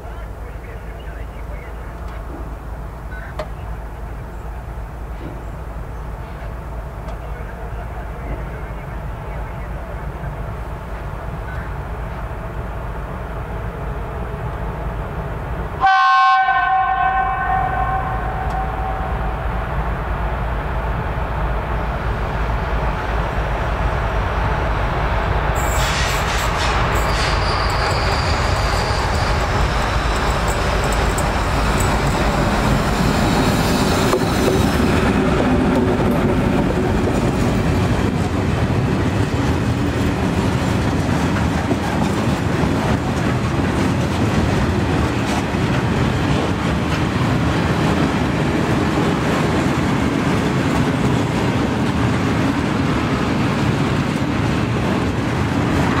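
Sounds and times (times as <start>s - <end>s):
diesel locomotive passing: 0.0s - 56.0s
metallic wheel squeal: 25.6s - 34.7s
wagon wheels clacking on rails: 27.6s - 52.6s.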